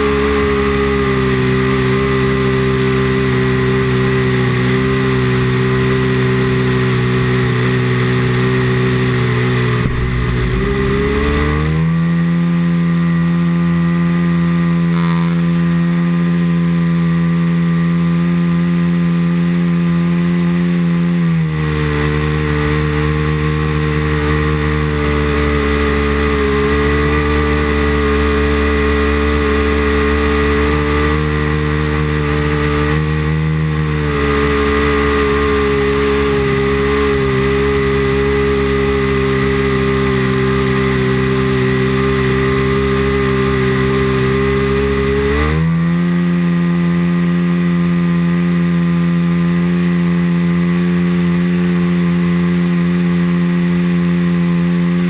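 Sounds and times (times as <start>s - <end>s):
model airplane engine running: 0.0s - 55.0s.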